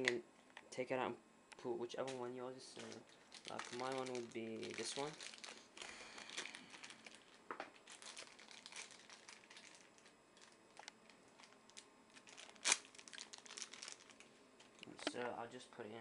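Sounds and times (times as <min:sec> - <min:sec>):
plastic bag crinkling: 0:02.0 - 0:14.8.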